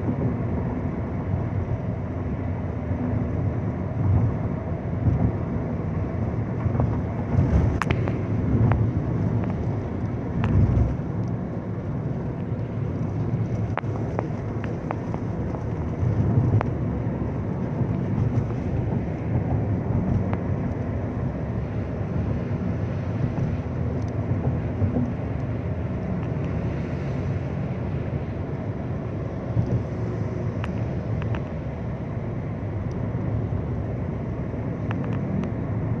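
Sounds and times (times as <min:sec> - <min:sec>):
taxi road and engine rumble: 0:00.0 - 0:36.0.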